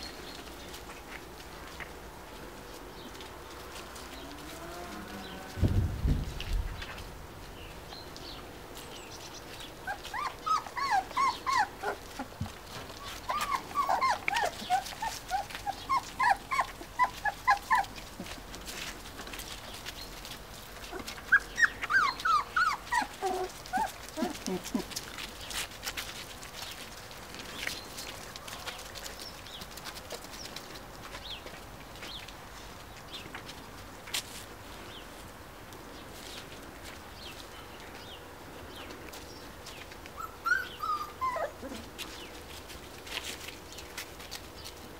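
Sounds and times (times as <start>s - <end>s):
puppies yipping and squeaking: 8.8s - 32.2s, 39.6s - 44.8s.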